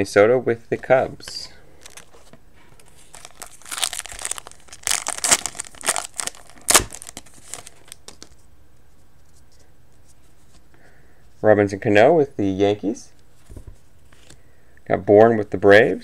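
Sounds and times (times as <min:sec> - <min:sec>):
foil wrapper crinkling and tearing: 0:01.8 - 0:02.2, 0:02.8 - 0:08.4.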